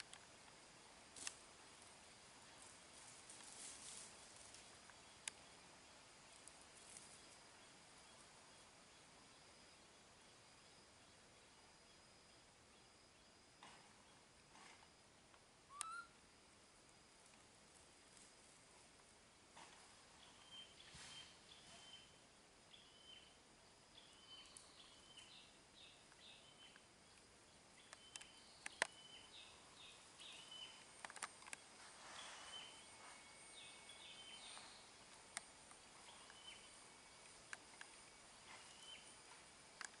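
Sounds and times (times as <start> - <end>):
high-pitched chirps: 15.7 - 16.1
sharp clicks: 27.9 - 29.0
thin steady high tone: 31.6 - 40.0.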